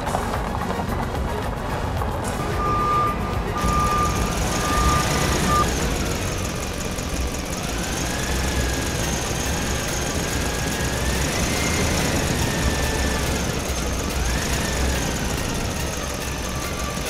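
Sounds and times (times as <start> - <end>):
toy truck motor whine: 1.8 - 17.0
reversing beep: 2.4 - 5.8.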